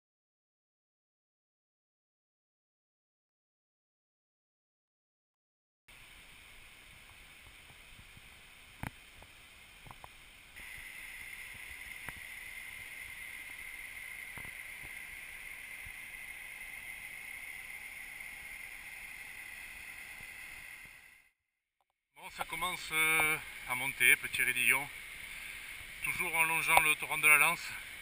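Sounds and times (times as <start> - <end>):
muffled mountain torrent rushing: 5.9 - 21.2, 22.3 - 28.0.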